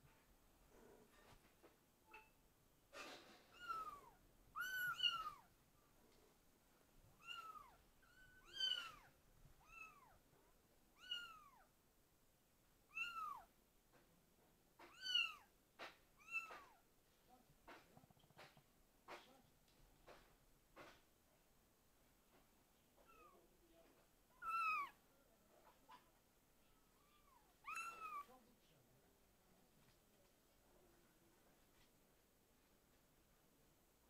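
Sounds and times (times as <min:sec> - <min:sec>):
kitten mewing: 0:03.5 - 0:05.5, 0:24.3 - 0:25.0, 0:27.0 - 0:28.3.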